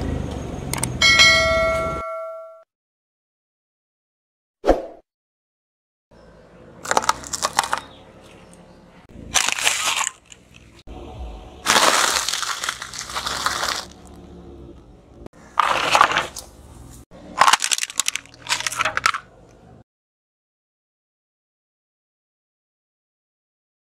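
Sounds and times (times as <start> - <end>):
plastic toy cracking: 6.8 - 7.8, 9.4 - 10.6, 17.4 - 19.3
tyre crushing objects: 6.8 - 7.9, 9.3 - 10.8, 11.6 - 14.1, 15.5 - 16.6, 17.3 - 19.2.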